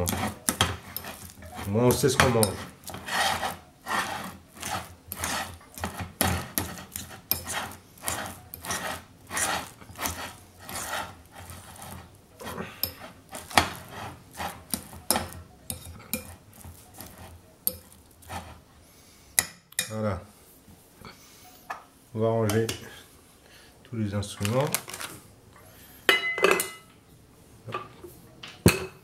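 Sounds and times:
metal spoon scraping glass bowl: 0.0 - 18.6.

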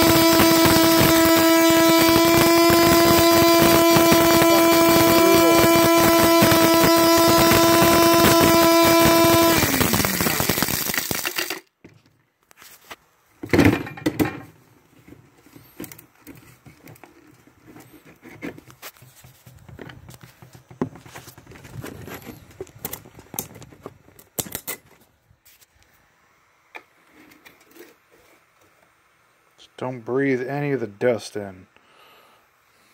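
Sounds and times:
electric grinder grinding stone: 0.0 - 11.6.

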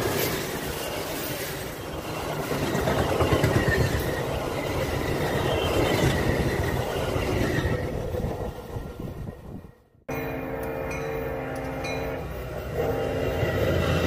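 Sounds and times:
clickety-clack over rail joints: 0.0 - 9.6
train wheels rumbling on rails: 0.0 - 14.0.

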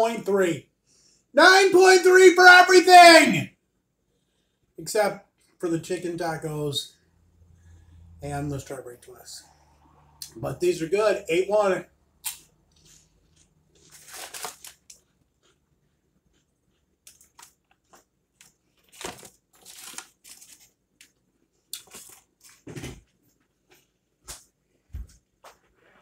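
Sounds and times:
paper bag crinkling: 12.8 - 15.1, 18.4 - 20.8.

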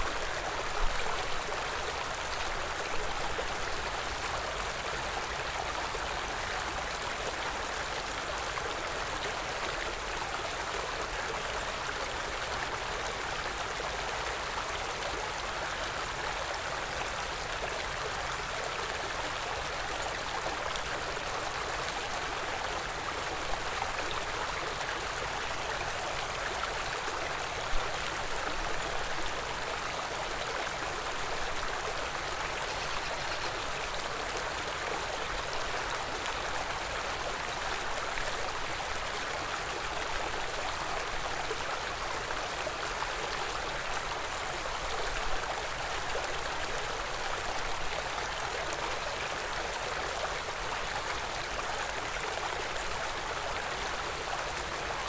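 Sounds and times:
stream flowing: 0.0 - 55.0.

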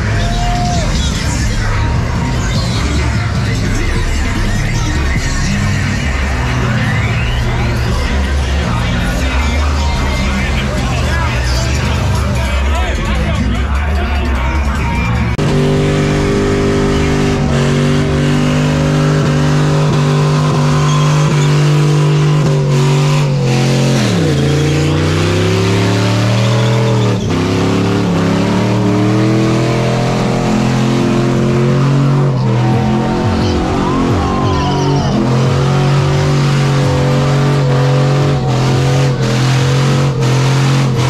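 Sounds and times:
truck engine revving high: 0.0 - 41.0.

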